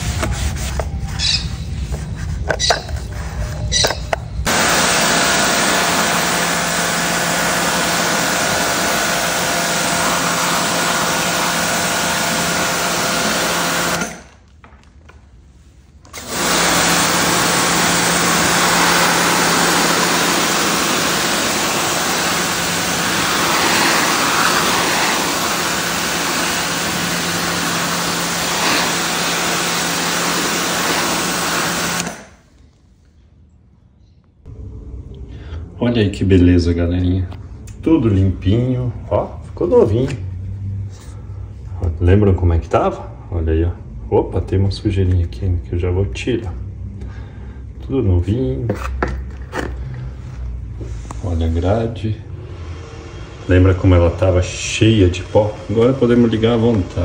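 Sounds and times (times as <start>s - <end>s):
pressure washer spraying water: 4.5s - 14.1s, 16.2s - 32.4s
sponge scrubbing plastic: 18.8s - 31.8s.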